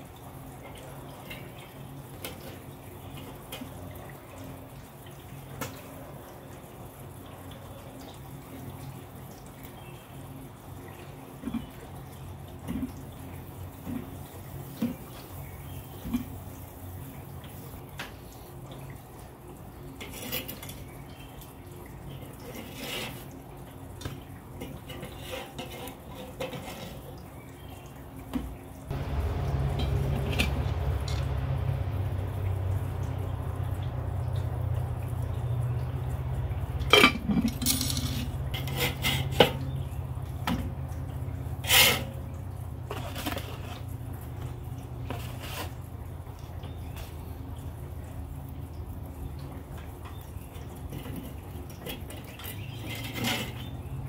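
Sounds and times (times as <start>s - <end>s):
metal spatula scraping grill grate: 22.5s - 23.3s, 24.6s - 27.1s, 36.9s - 39.7s, 41.6s - 42.2s, 45.1s - 45.8s, 52.0s - 53.8s
steady low rumble: 28.9s - 37.0s.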